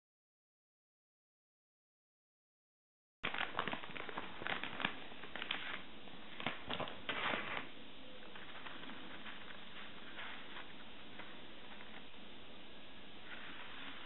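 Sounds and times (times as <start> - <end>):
plastic bag crinkling: 3.3 - 12.1.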